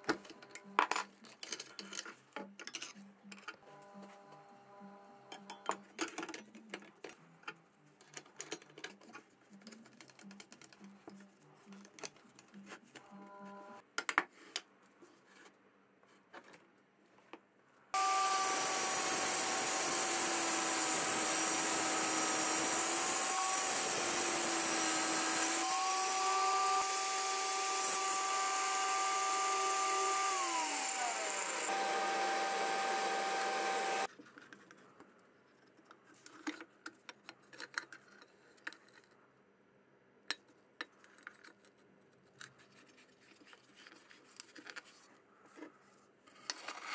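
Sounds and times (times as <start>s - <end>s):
angle grinder cutting tile: 18.0s - 34.1s.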